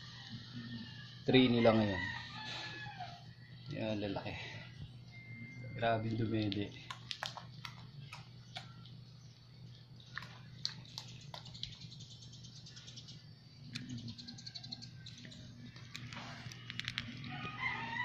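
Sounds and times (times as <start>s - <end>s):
low steady hum: 0.0s - 18.0s
puppies suckling wet clicks: 6.1s - 12.4s, 13.6s - 17.5s.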